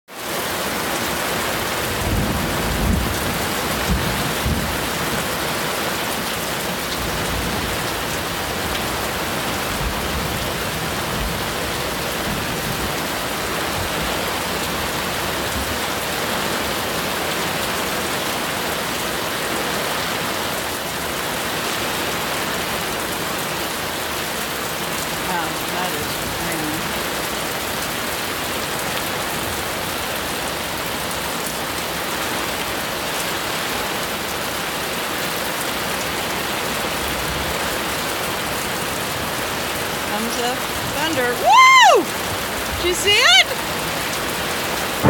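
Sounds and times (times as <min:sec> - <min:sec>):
heavy rain pouring: 0:00.1 - 0:45.0
low thunder rumbles: 0:01.9 - 0:05.4.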